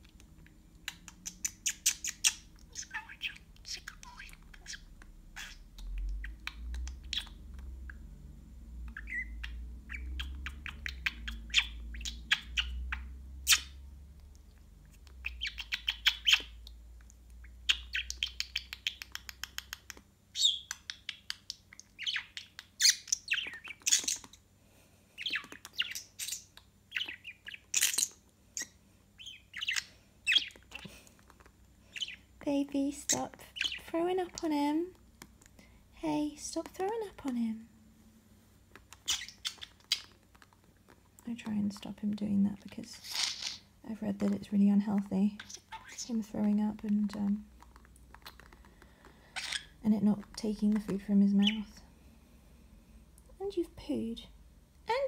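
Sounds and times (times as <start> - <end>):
budgerigar chattering and warbling: 0.8 - 7.4, 39.0 - 40.2.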